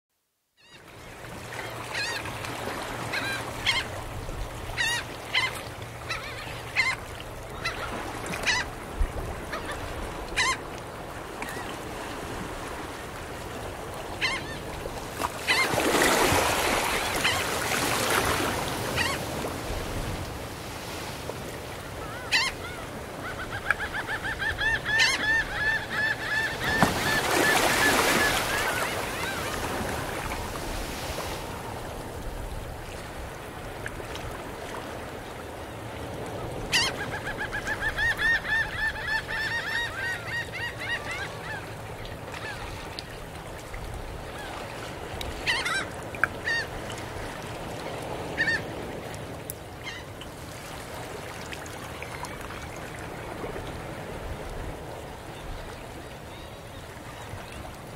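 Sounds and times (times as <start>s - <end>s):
ocean waves breaking: 0.8s - 57.9s
gulls calling: 1.5s - 4.0s, 4.6s - 8.8s, 9.4s - 10.7s, 14.1s - 19.4s, 21.8s - 31.1s, 36.3s - 43.2s, 45.4s - 46.8s, 48.0s - 48.8s.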